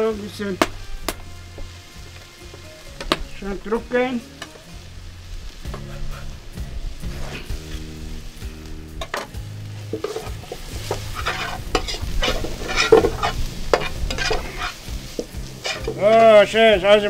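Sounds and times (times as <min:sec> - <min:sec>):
vegetables sizzling in oil: 0:00.0 - 0:17.0
spoon scraping a pan: 0:07.0 - 0:08.0, 0:08.9 - 0:16.3.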